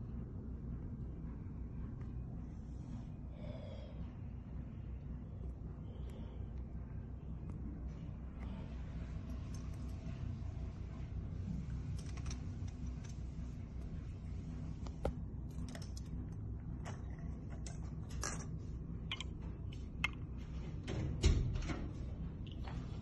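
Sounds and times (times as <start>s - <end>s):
steady low hum: 0.0s - 23.0s
metal links clicking and rattling: 11.8s - 13.2s, 15.4s - 19.2s.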